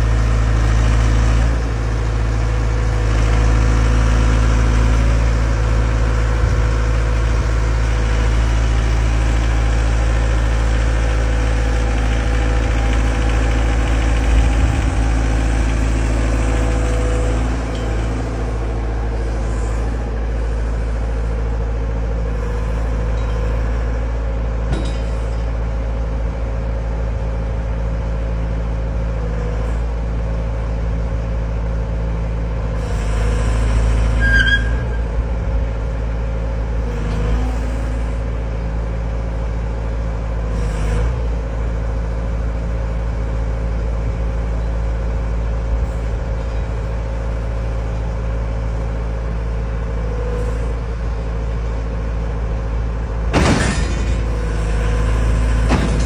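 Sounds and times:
diesel engine running under load: 0:00.0 - 0:56.0
high squeal: 0:34.1 - 0:35.1.

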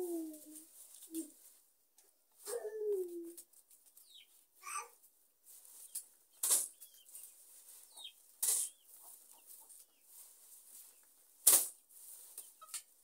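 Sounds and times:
leaves slapped on a sack: 0:06.4 - 0:06.8, 0:08.4 - 0:08.7, 0:11.4 - 0:12.9.

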